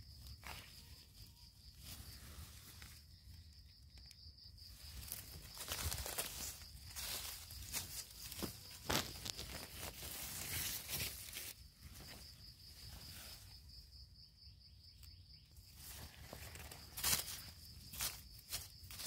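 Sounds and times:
high insect trill: 0.0 - 19.0
dry leaves crackling and rustling: 4.7 - 12.2, 15.8 - 19.0
twigs snapping: 5.0 - 11.6, 15.9 - 19.0.

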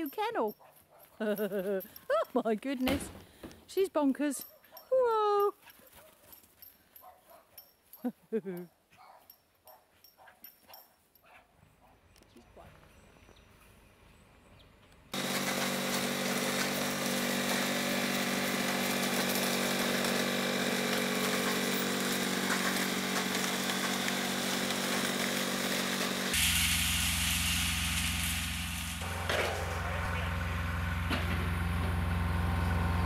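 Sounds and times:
piling rig engine running: 15.2 - 33.0.

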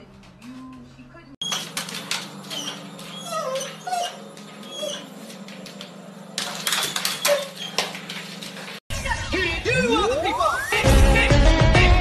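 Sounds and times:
pet crying: 2.4 - 5.1
knocks and clatter: 5.4 - 8.8.

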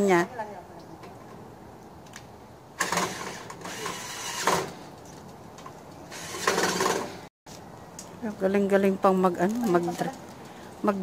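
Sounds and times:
cordless drill running: 2.8 - 4.7, 6.1 - 7.0.

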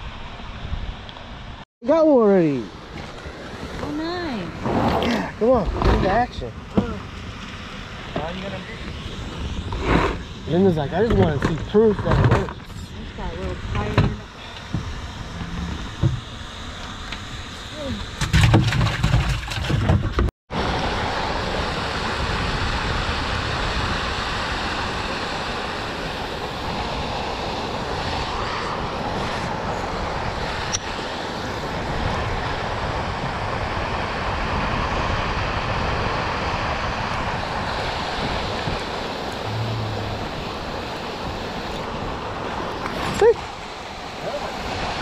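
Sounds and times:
water moving around a boat: 11.1 - 45.0
wind rushing: 31.3 - 42.8
short low hum: 39.1 - 41.3.

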